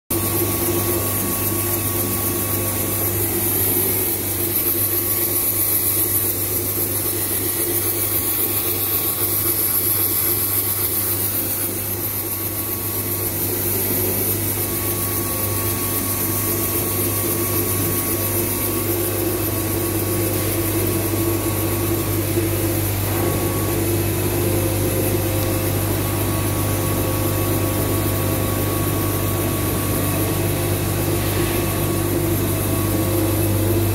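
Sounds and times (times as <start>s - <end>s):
lathe machine hum: 0.1s - 33.9s.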